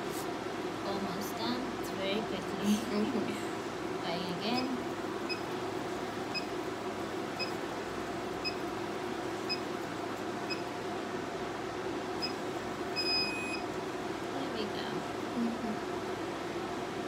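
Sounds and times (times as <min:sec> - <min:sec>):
cooling fan hum: 0:00.0 - 0:17.0
machine beeping: 0:04.5 - 0:05.5, 0:06.3 - 0:06.6, 0:07.3 - 0:07.6, 0:08.4 - 0:08.6, 0:09.4 - 0:09.7, 0:10.4 - 0:10.7, 0:12.2 - 0:13.7.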